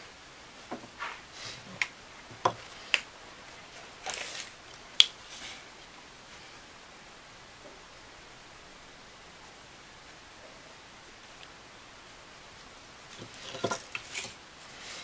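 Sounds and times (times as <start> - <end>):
tools set down on wooden workbench: 13.2 - 14.4.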